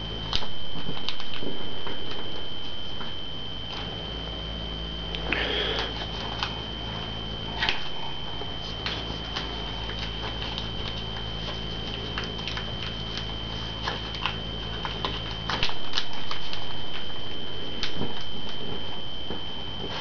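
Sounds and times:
high-pitched whine: 0.0 - 20.0
low background hum: 0.0 - 20.0
paper being folded and creased: 5.5 - 17.1.

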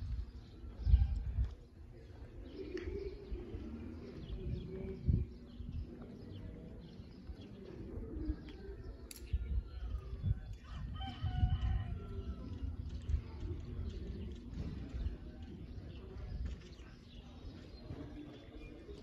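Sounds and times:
small birds chirping: 0.0 - 19.0
dove cooing: 2.3 - 5.7.

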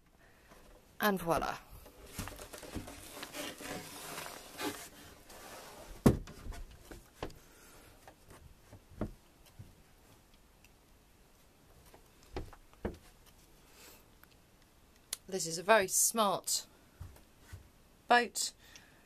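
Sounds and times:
wood rubbing and shuffling: 1.8 - 10.3, 11.7 - 13.5.

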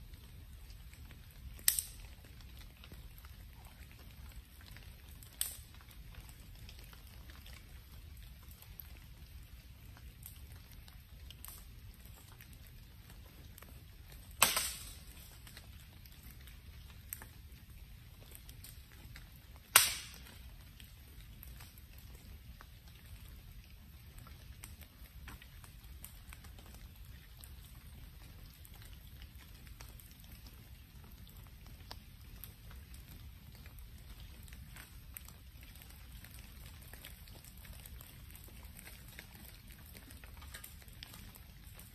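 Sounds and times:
bonfire crackling: 0.0 - 41.9
loud sharp cracks of fire: 1.3 - 3.7, 4.4 - 6.9, 11.2 - 17.6, 18.2 - 22.8, 34.4 - 41.9
small pop of fire: 1.5 - 2.4, 4.7 - 5.8, 14.1 - 16.2, 19.5 - 20.6, 40.4 - 41.2
sharp pops: 14.4 - 15.1, 19.7 - 20.4.

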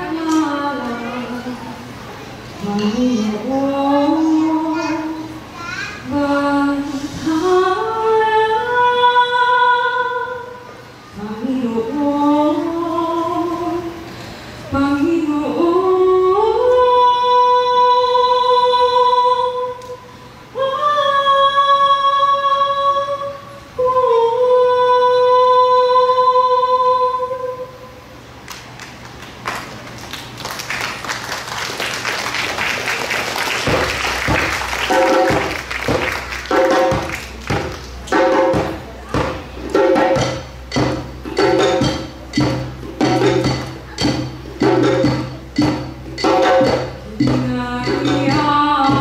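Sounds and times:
woman singing unaccompanied: 0.0 - 2.0, 2.6 - 5.3, 6.0 - 14.1, 14.7 - 28.0, 34.9 - 49.0
audience applause: 28.8 - 37.9.

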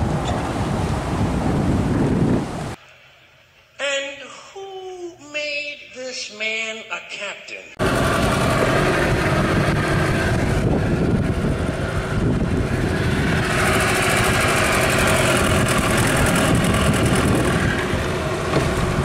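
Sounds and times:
motorboat engine running: 7.8 - 19.0.

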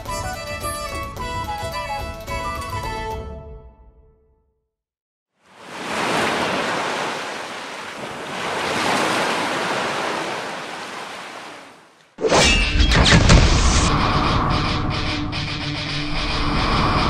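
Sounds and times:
sea waves washing in: 5.4 - 12.0, 16.1 - 17.0.

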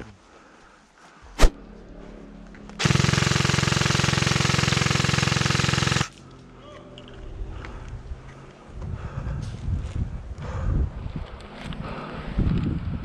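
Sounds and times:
airsoft rifle full-auto burst: 2.8 - 6.2.

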